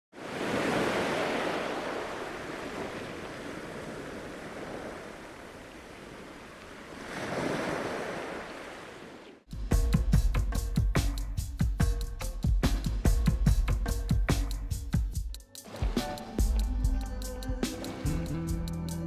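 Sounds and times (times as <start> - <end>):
sea water surging: 0.2 - 9.4, 15.6 - 16.6.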